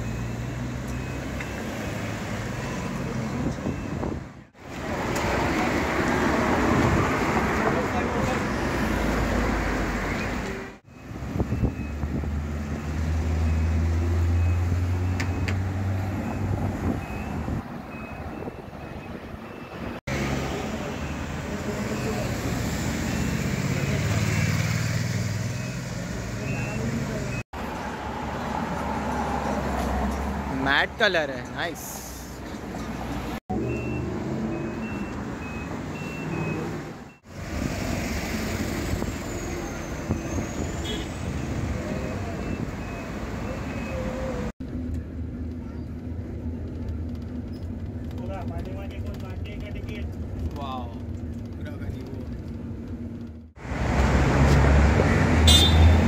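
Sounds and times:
cars passing close by: 0.0s - 44.6s, 52.7s - 56.0s
street traffic engines: 0.0s - 56.0s
faint high beeps: 25.6s - 27.4s.

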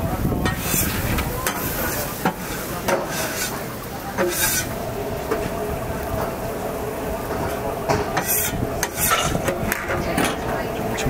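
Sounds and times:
griddle sizzling: 0.0s - 11.0s
metal utensils scraping trays: 0.4s - 5.5s, 7.3s - 11.0s.

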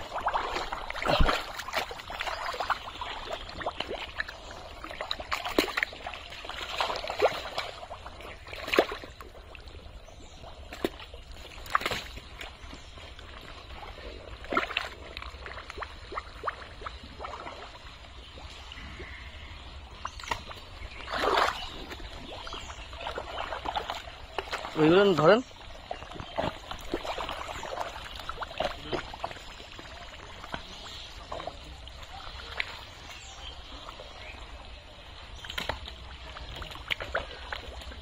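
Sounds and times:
low sloshing: 0.0s - 38.0s
hands splashing in wet mud: 0.2s - 2.8s, 20.2s - 22.0s.

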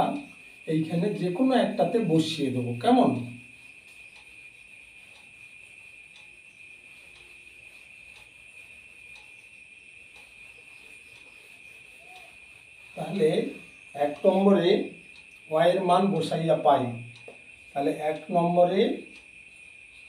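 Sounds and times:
crickets droning: 0.0s - 20.0s
marker scratching on whiteboard: 7.0s - 14.5s.

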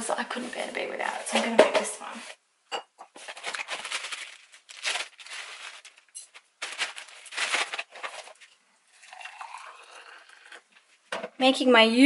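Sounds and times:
crinkly packaging rustling: 3.1s - 8.6s.

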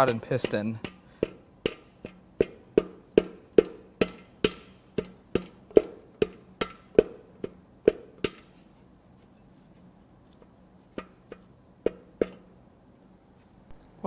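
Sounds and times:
tool knocking on metal: 0.0s - 8.4s, 11.0s - 12.5s.

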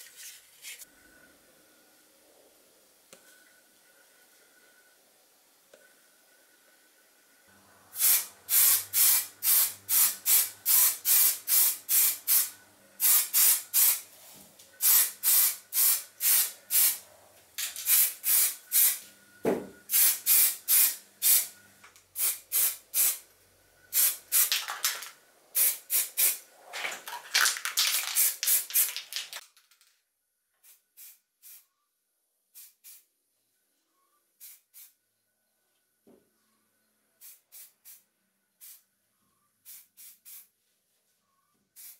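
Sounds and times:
aerosol spray can hissing puffs: 8.0s - 14.0s, 14.8s - 17.0s, 17.6s - 19.0s, 19.9s - 21.5s, 22.2s - 23.2s, 23.9s - 26.4s, 27.4s - 29.4s, 30.6s - 31.6s, 32.6s - 33.1s, 34.4s - 34.9s, 37.2s - 38.0s, 38.6s - 38.8s, 39.7s - 40.5s.

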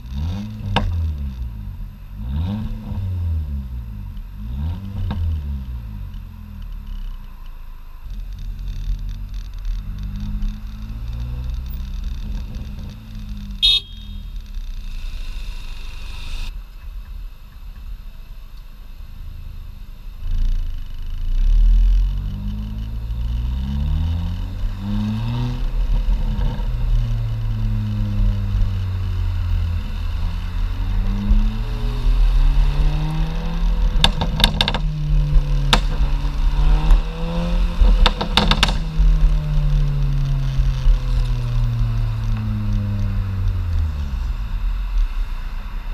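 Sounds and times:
exhaust pops and crackles: 0.0s - 3.1s, 4.0s - 18.8s, 20.2s - 45.9s
car exhaust under acceleration: 0.0s - 45.9s.

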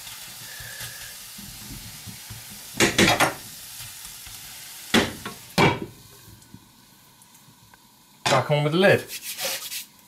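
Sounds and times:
vegetables sizzling in a skillet: 0.0s - 10.0s
wooden spatula scraping a pan: 9.0s - 9.9s.

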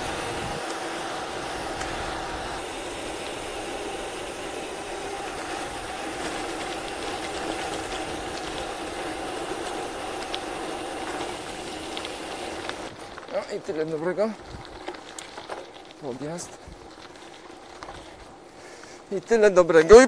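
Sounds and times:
wind rumbling on microphone: 0.0s - 0.6s, 14.3s - 15.2s
bicycle tyres rolling on asphalt: 0.0s - 20.0s.

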